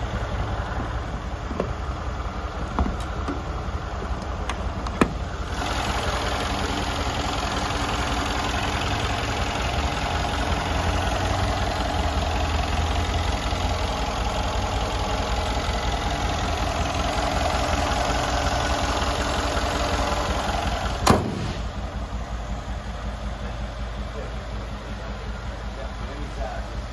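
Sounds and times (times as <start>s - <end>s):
car engine idling: 0.0s - 26.9s
car hood slammed shut: 21.0s - 21.7s.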